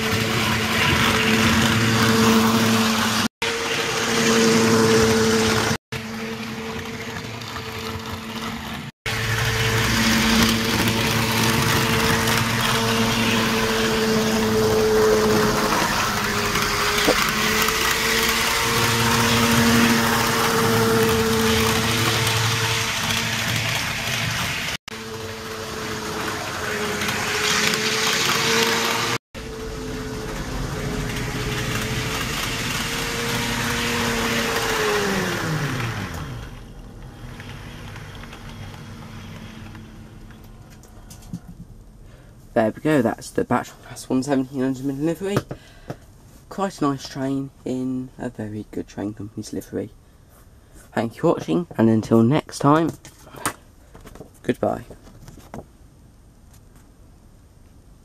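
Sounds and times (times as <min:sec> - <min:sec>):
model train motor whine: 0:00.0 - 0:41.2
wheels on track: 0:00.0 - 0:41.8.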